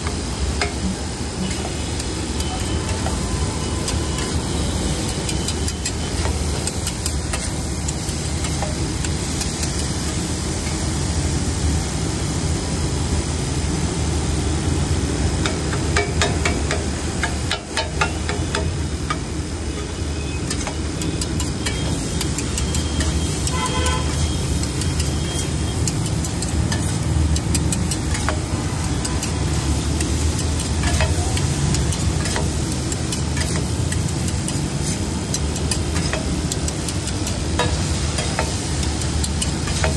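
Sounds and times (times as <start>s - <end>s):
street traffic rumble: 0.0s - 39.9s
metal spatulas scraping on griddle: 1.4s - 9.9s, 20.4s - 39.9s
vehicle horn toot: 23.4s - 24.5s.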